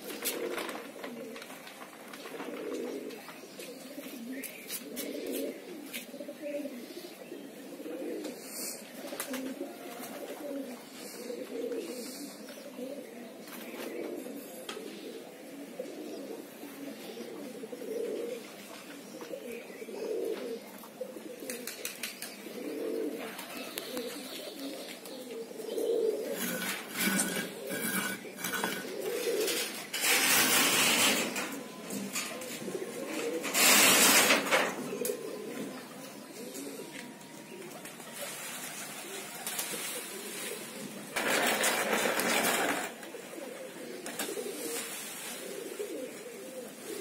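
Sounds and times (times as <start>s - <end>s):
pigeons cooing: 0.0s - 47.0s
loud rustling: 26.3s - 34.8s, 38.1s - 43.0s.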